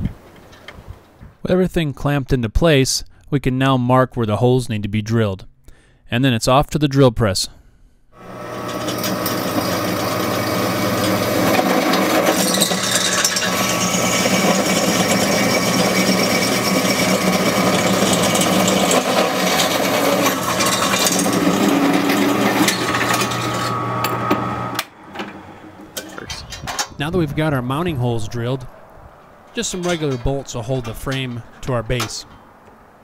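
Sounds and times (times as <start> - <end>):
drill bit scraping through steel: 8.2 - 24.8
drill press motor hum: 8.2 - 26.3.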